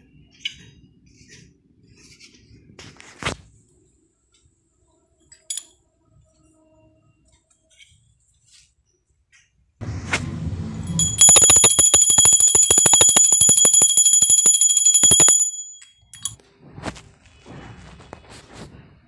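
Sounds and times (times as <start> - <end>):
brass hand bell ringing: 10.9 - 16.4.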